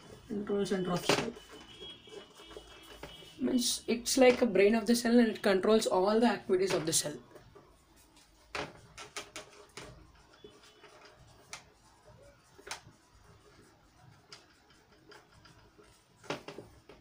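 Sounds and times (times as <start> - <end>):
marker scratching on whiteboard: 0.0 - 17.0.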